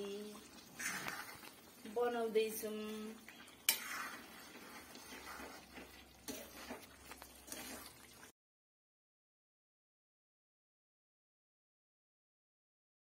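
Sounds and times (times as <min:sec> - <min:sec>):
curry simmering: 0:00.0 - 0:08.4.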